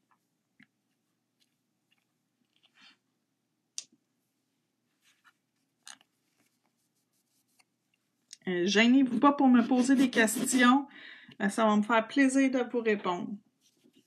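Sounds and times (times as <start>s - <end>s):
faint scratchy strokes: 4.2s - 8.2s, 13.6s - 14.0s.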